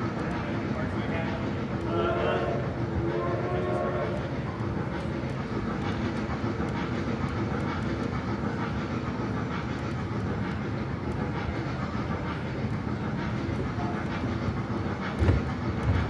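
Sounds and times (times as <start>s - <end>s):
ride-on train rumbling: 0.0s - 16.0s.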